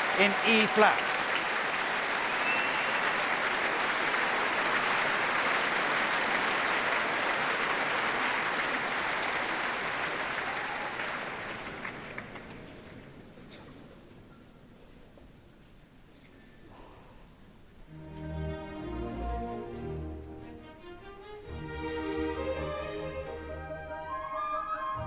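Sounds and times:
audience applauding: 0.0 - 13.2.

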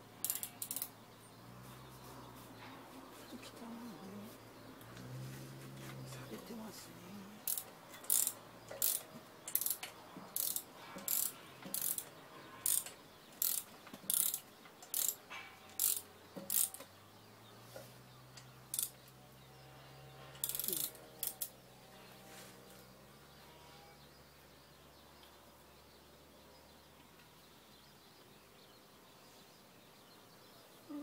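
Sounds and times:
ratchet wrench clicking: 0.2 - 0.9, 7.4 - 15.2, 15.8 - 16.9, 18.7 - 19.0, 20.4 - 21.5.

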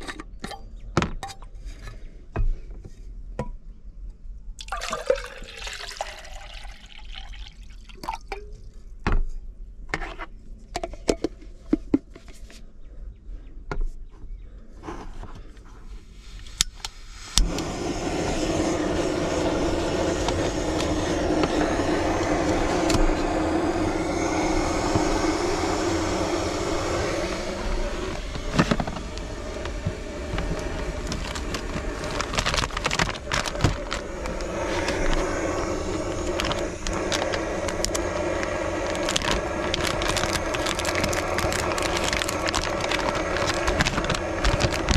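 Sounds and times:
water pouring: 4.6 - 8.6
gas burner hissing: 16.1 - 44.9.

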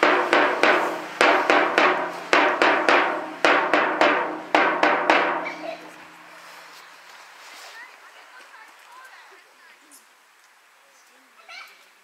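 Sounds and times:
drum beating: 0.0 - 6.4.

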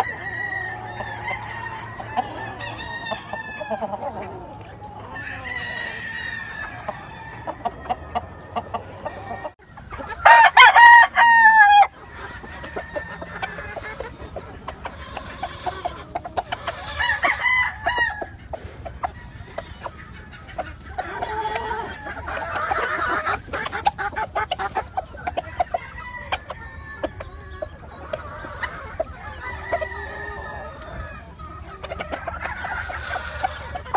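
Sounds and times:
roosters crowing: 0.0 - 18.4, 20.9 - 33.9
chickens clucking: 0.0 - 33.9.

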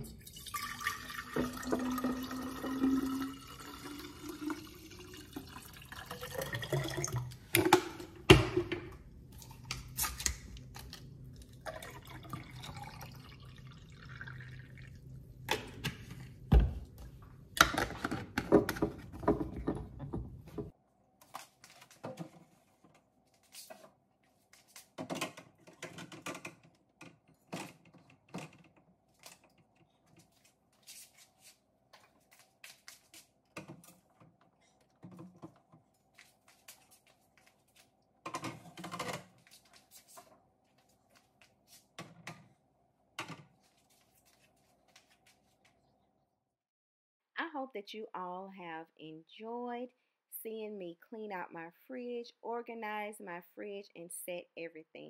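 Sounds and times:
liquid sounds: 9.3 - 15.5
containers knocking and clicking: 17.6 - 20.7.

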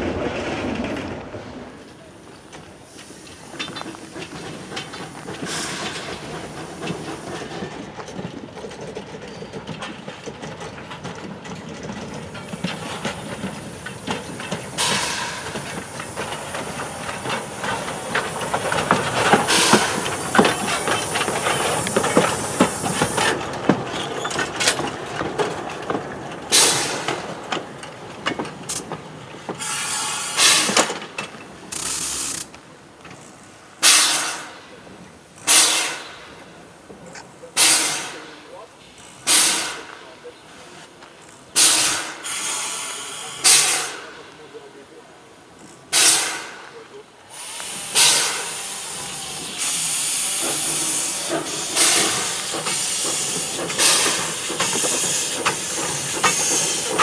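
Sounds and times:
steam locomotive running: 0.0 - 57.0
hissing steam: 2.0 - 8.0, 12.1 - 25.2, 26.4 - 27.9, 28.5 - 32.6, 33.2 - 45.0, 45.9 - 57.0
sharp bursts of steam: 2.8 - 7.7, 12.5 - 23.5, 26.5 - 27.2, 29.6 - 30.9, 31.7 - 32.5, 33.8 - 34.7, 35.4 - 36.4, 37.5 - 40.2, 41.5 - 44.3, 45.9 - 57.0.

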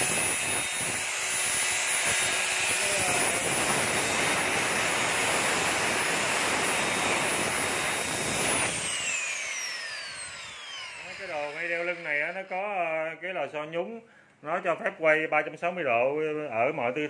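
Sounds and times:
electric motor whining: 0.0 - 12.8.

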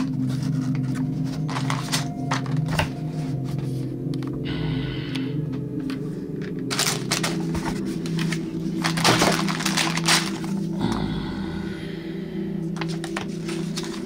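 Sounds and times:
plastic bags crinkling: 0.0 - 3.0, 6.4 - 10.8, 12.7 - 14.0
background music: 0.0 - 14.0.

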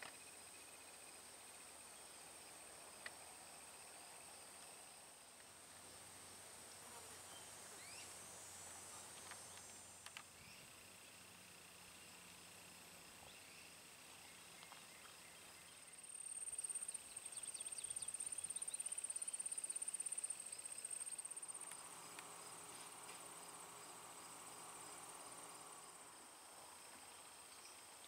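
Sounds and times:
crickets trilling: 5.8 - 28.0.

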